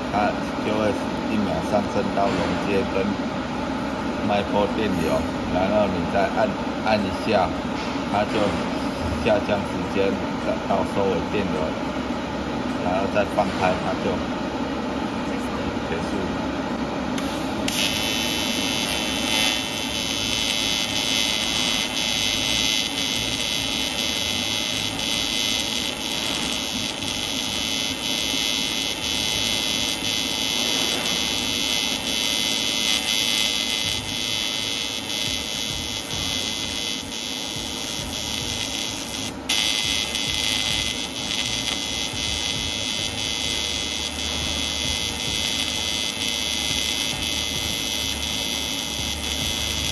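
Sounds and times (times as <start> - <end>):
welding arc buzzing: 0.0 - 12.0, 17.0 - 49.9.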